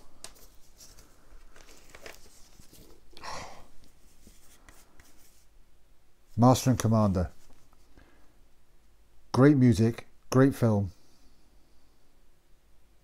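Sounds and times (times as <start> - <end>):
packaging rustling: 0.0 - 3.2.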